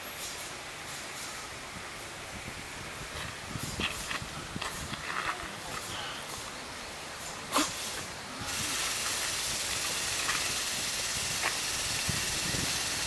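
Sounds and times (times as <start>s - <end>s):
steady high hiss: 0.0s - 13.0s.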